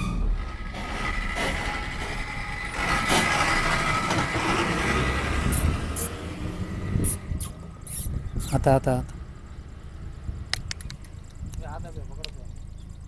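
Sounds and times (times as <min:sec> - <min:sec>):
lorry engine and tyre rumble: 0:00.0 - 0:13.0
sharp clicks: 0:07.4 - 0:08.6, 0:10.5 - 0:12.4.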